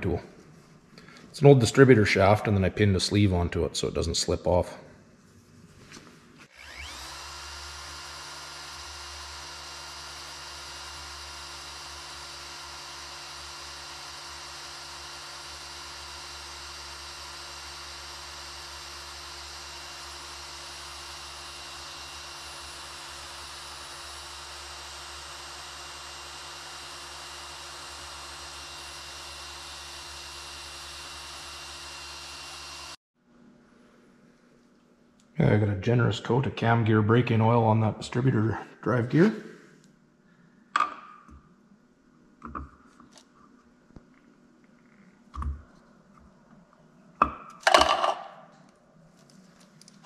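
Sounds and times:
electric drill running: 6.4 - 33.0.

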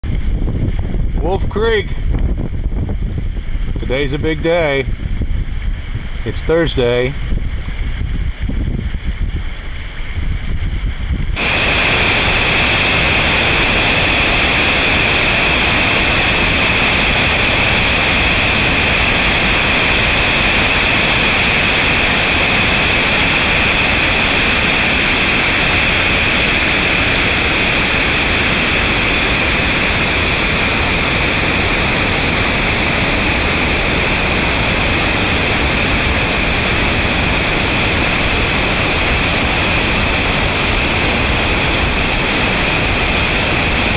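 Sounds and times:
waterfall rushing: 11.4 - 43.9.

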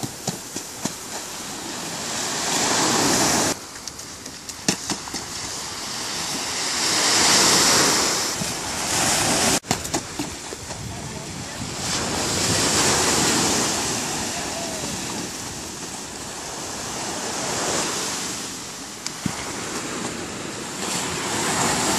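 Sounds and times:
small waves breaking on shore: 0.0 - 21.9
wind buffeting microphone: 4.6 - 18.3.

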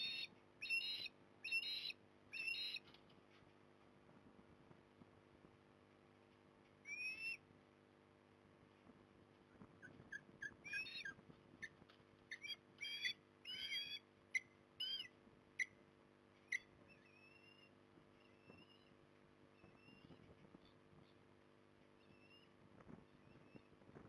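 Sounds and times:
drawn-out bird whistles: 0.0 - 2.8, 6.8 - 7.4, 9.8 - 11.2, 12.3 - 15.8
osprey whistled chirps: 0.0 - 2.8, 6.9 - 7.4.

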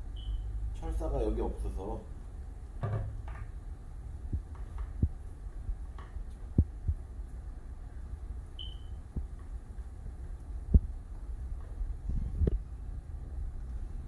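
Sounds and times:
steady low hum: 0.0 - 14.0
dull knocks on plastic tank: 2.8 - 3.4.

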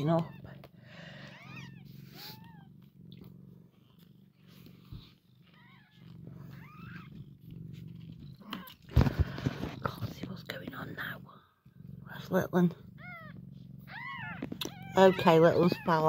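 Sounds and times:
cat purring: 0.0 - 16.0
kittens mewing: 12.0 - 16.0.

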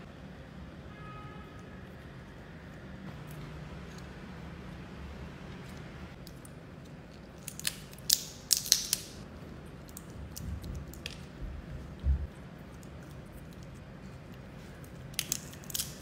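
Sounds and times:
crab shell cracking: 6.2 - 11.4, 12.7 - 16.0.

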